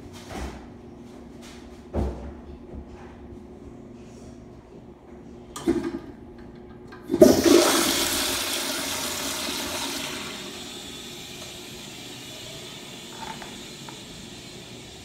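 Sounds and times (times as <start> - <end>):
toilet flushing: 5.6 - 6.2, 6.9 - 15.0.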